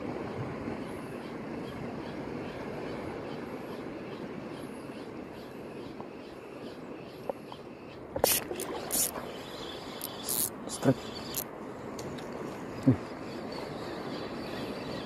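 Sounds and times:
water noise: 0.0s - 15.0s
wind: 0.0s - 15.0s
loud short hissing bursts: 8.2s - 9.2s, 10.0s - 11.4s
fishing reel cranking: 8.2s - 11.5s.

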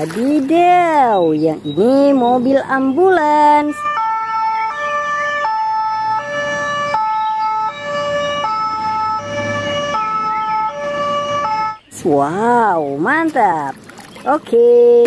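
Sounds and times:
two-tone ambulance siren: 1.8s - 11.9s.

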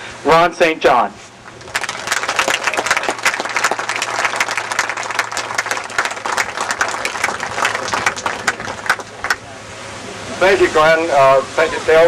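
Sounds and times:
crowd applauding: 1.5s - 9.5s.

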